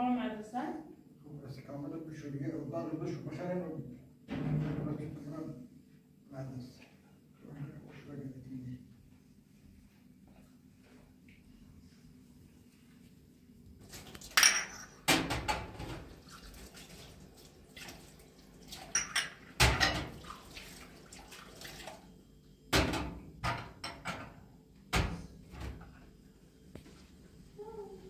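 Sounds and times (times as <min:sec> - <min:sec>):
glasses clinking: 0:14.4 - 0:15.0, 0:19.0 - 0:19.4.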